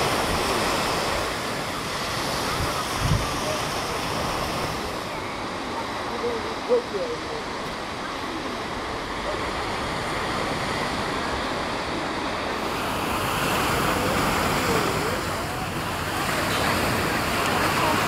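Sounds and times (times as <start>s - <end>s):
wind on the microphone: 0.0s - 5.2s
surf breaking on a beach: 0.0s - 18.0s.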